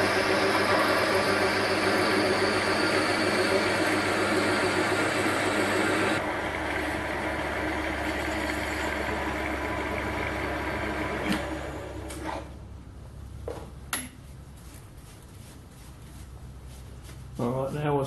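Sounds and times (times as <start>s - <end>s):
lathe running: 0.0s - 12.4s
lathe running down: 0.0s - 12.5s.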